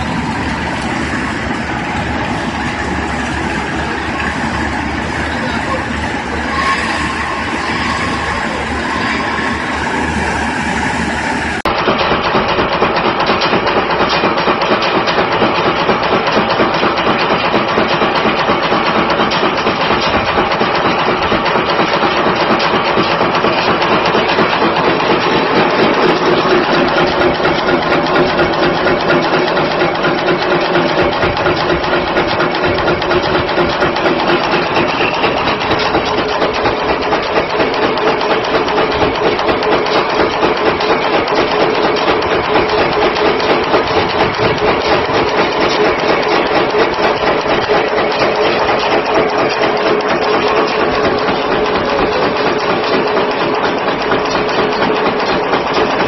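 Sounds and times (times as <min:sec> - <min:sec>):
nail machine metallic clatter: 0:11.7 - 0:56.0.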